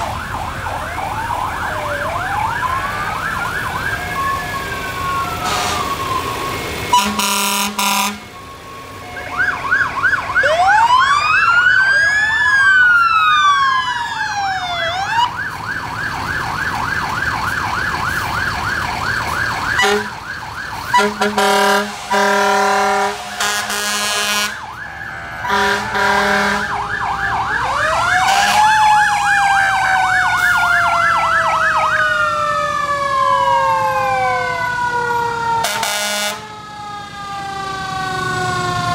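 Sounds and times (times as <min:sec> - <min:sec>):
electronic siren yelp: 0:00.0 - 0:38.9
siren wails: 0:00.0 - 0:38.9
fire truck horn blasts: 0:05.4 - 0:06.0, 0:06.9 - 0:08.3, 0:19.8 - 0:20.2, 0:20.8 - 0:24.7, 0:25.3 - 0:26.8, 0:28.2 - 0:28.8, 0:35.6 - 0:36.5.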